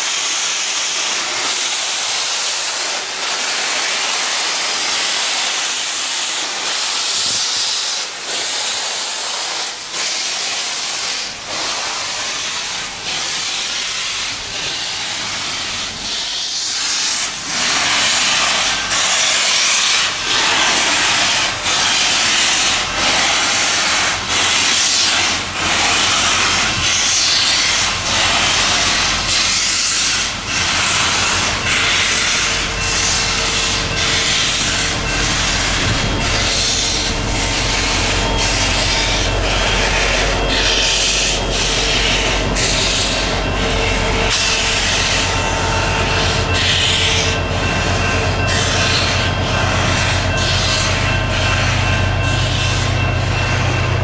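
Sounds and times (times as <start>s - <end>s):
steam hissing: 0.0s - 54.0s
steam locomotive exhaust chuffing: 0.0s - 54.0s.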